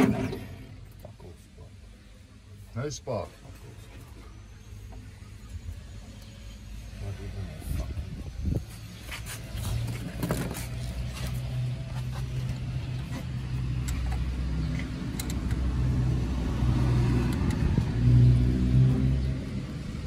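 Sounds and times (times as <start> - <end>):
engine cranking on starter: 0.0 - 0.8.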